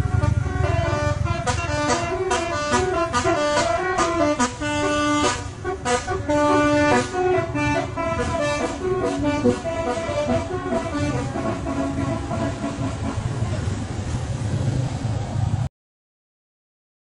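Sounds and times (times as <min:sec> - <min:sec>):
bus horn playing a tune: 0:00.0 - 0:13.5
bus engine rumble: 0:00.0 - 0:15.7.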